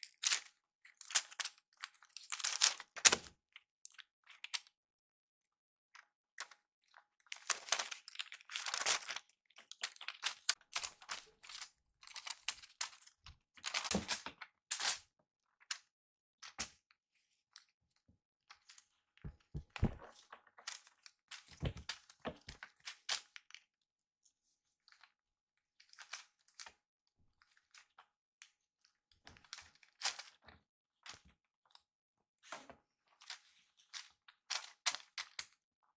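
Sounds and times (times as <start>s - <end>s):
soft thumps: 19.3s - 20.1s.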